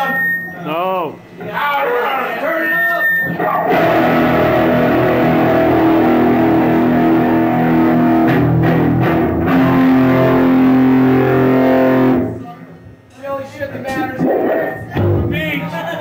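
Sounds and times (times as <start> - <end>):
distorted electric guitar chords: 3.3 - 12.4, 14.0 - 15.5
bass guitar: 3.6 - 12.4, 14.0 - 15.6.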